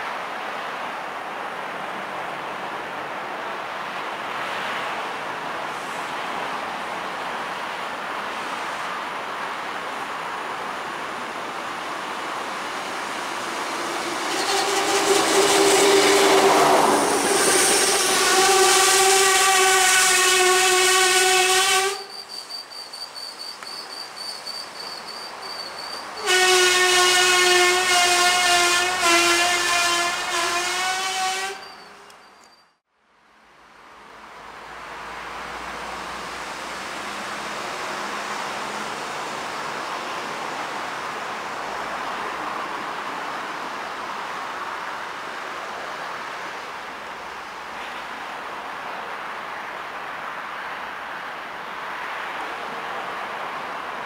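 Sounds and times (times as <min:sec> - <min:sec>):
diesel railcar rumble: 0:00.0 - 0:32.8.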